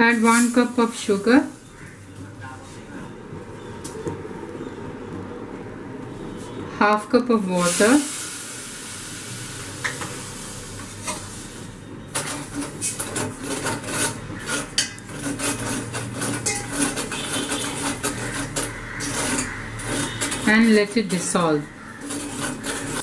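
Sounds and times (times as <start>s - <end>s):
steady hiss: 7.5s - 11.8s
spoon scraping a steel saucepan: 12.1s - 23.0s.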